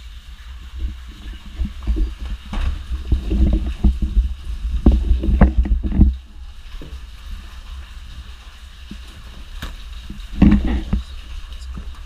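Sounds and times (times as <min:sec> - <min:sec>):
storm wind buffeting microphone: 0:00.6 - 0:06.3
thumps and knocks: 0:01.6 - 0:06.2, 0:09.6 - 0:11.1.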